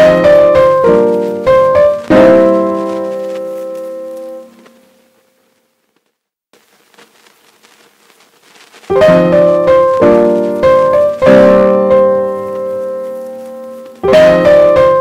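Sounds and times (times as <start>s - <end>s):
piano chords: 0.0s - 5.2s, 8.9s - 15.0s.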